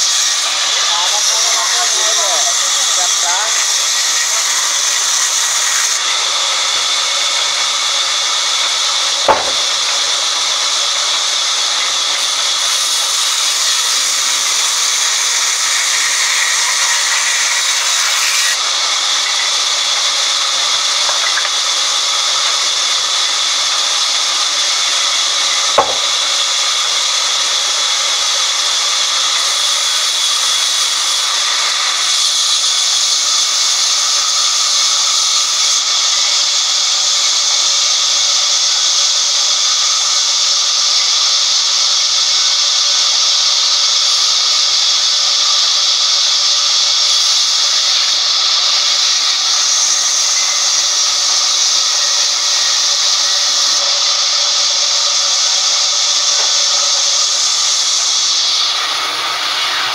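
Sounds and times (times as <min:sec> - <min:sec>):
band saw blade ripping log: 0:25.8 - 0:26.1.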